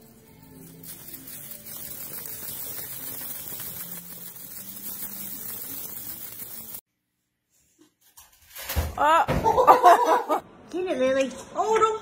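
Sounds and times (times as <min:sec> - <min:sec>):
steady hiss: 0:00.0 - 0:06.8.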